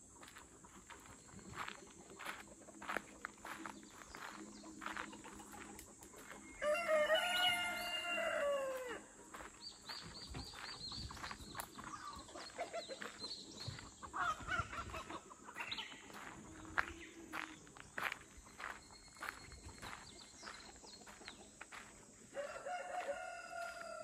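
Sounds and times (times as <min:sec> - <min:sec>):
footsteps crunching on gravel: 0:00.0 - 0:24.0
rooster crowing: 0:06.6 - 0:09.1, 0:22.3 - 0:24.0.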